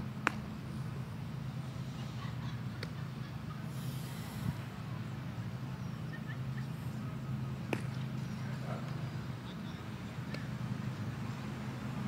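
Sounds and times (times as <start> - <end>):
low outdoor rumble: 0.0 - 12.0
sharp crack: 0.2 - 0.5, 7.7 - 8.0.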